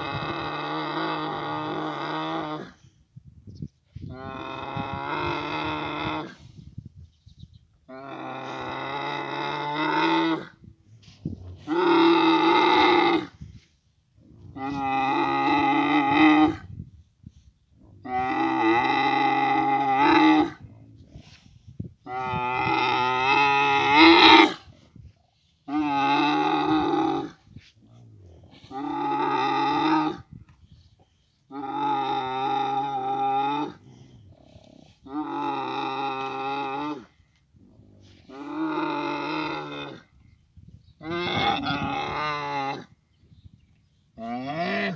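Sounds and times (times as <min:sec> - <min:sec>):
camel calling: 0:44.2 - 0:44.9.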